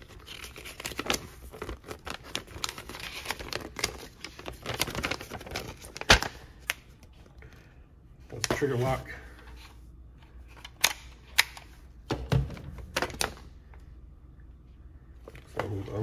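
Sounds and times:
paper crinkling and rustling: 0:00.0 - 0:06.8.

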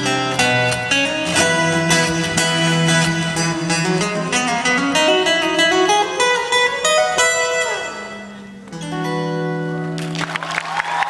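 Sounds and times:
fingerstyle acoustic guitar: 0:00.0 - 0:10.4.

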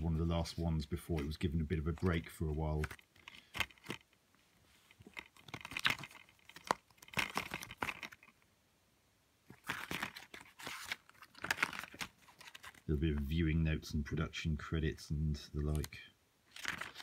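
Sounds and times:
paper rustling: 0:04.7 - 0:08.3, 0:09.5 - 0:13.4, 0:16.5 - 0:17.0.

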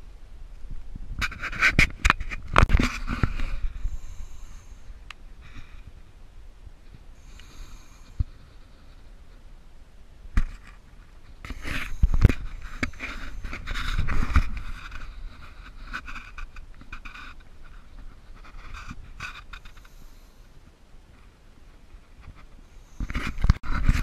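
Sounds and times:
scraping and rustling: 0:01.2 - 0:06.0, 0:10.4 - 0:20.2, 0:21.2 - 0:24.0
breathing through gas mask: 0:03.0 - 0:05.9, 0:07.2 - 0:08.6, 0:11.5 - 0:14.4.

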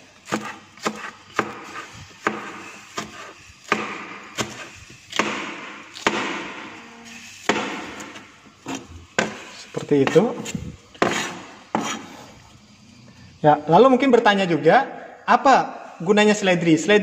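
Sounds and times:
cleaver chopping on plastic board: 0:00.3 - 0:06.6, 0:07.5 - 0:08.2, 0:09.2 - 0:09.4, 0:11.0 - 0:12.0
blade scraping board: 0:10.4 - 0:12.3.

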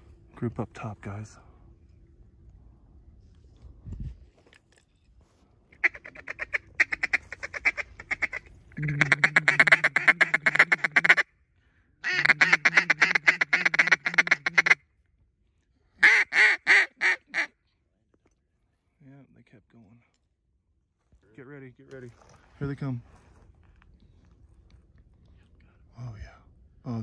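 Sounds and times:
duck call quacks: 0:05.8 - 0:11.3, 0:12.0 - 0:14.8, 0:16.0 - 0:17.5.

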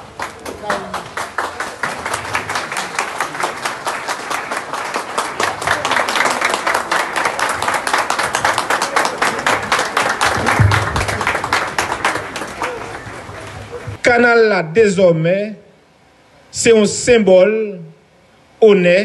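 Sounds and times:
crowd clapping: 0:00.0 - 0:14.0.

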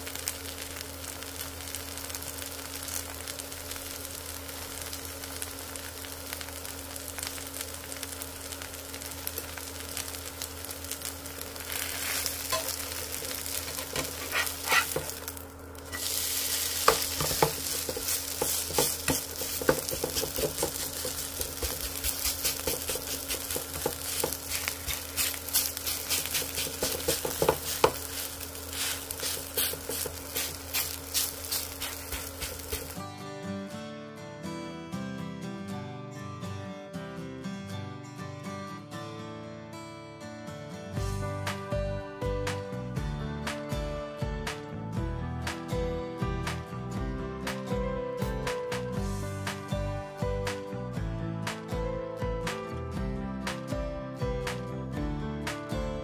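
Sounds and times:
batter sizzling in oil: 0:00.0 - 0:33.0
spatula scraping and tapping pan: 0:13.6 - 0:15.3, 0:16.8 - 0:33.0.

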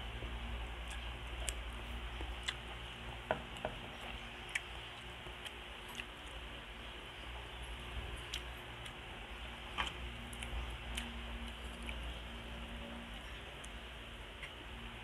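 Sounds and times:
person chewing food: 0:00.1 - 0:06.5, 0:07.3 - 0:12.2.

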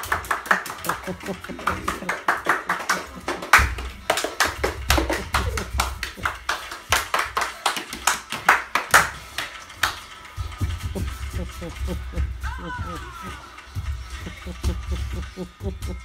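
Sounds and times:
hands clapping: 0:00.0 - 0:10.2
music playing: 0:00.0 - 0:16.0.

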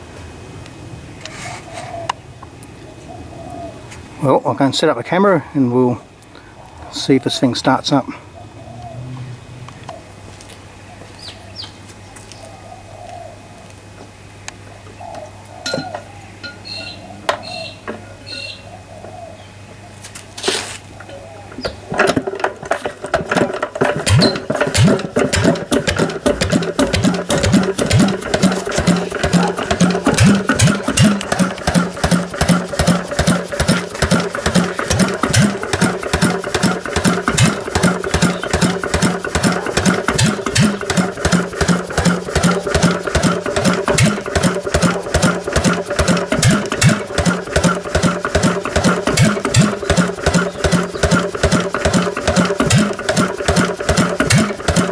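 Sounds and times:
stationary engine running: 0:22.6 - 0:54.9.

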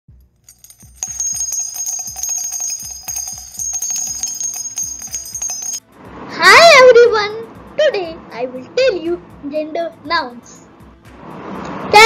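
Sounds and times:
jingle with ringing bells: 0:00.4 - 0:05.9.

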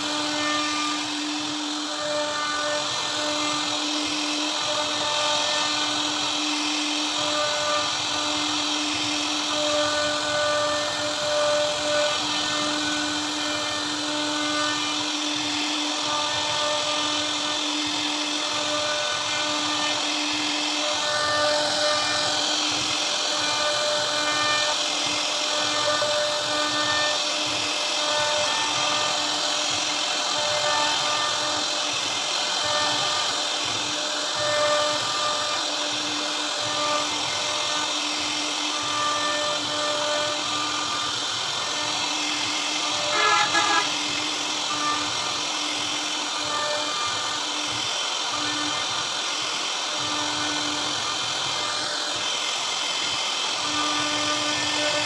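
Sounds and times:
bit cutting wood hiss: 0:00.0 - 0:55.0
router spindle whine: 0:00.0 - 0:55.0.

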